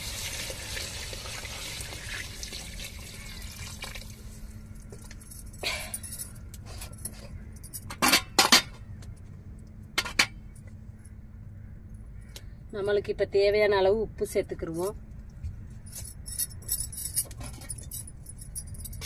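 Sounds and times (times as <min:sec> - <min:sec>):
water pouring into metal pot: 0:00.0 - 0:04.3.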